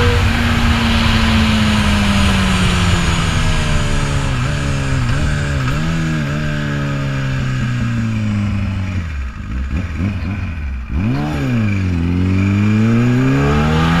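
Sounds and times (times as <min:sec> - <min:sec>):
wind rushing over microphone: 0:00.0 - 0:06.4
motorcycle engine: 0:00.0 - 0:14.0.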